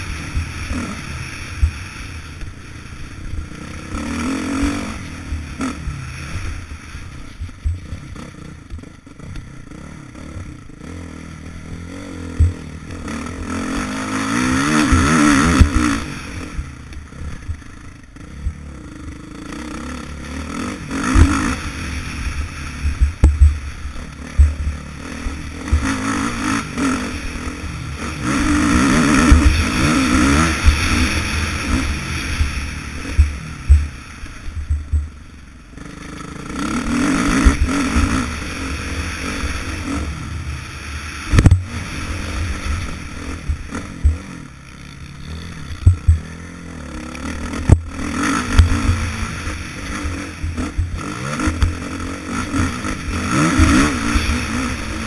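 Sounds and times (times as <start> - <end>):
dirt bike engine revving: 0.0 - 55.0
sharp thumps: 21.1 - 26.0, 29.2 - 35.2, 41.3 - 44.4, 45.6 - 46.4, 47.6 - 49.3.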